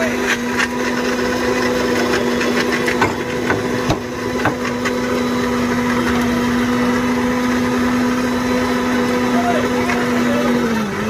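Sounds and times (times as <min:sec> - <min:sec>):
electric mixer grinder humming: 0:00.0 - 0:11.0.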